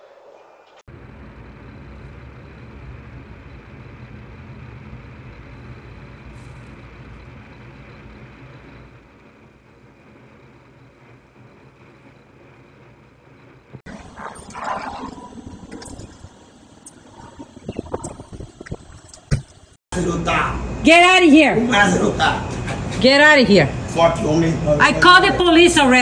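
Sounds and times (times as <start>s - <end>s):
truck engine idling: 0.9s - 13.8s.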